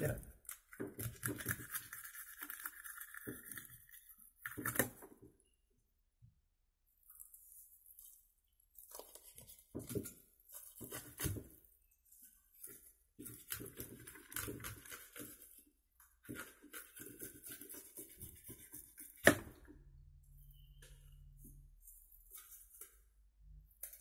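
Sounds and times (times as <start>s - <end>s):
knife scraping fish scales: 16.2s - 19.3s.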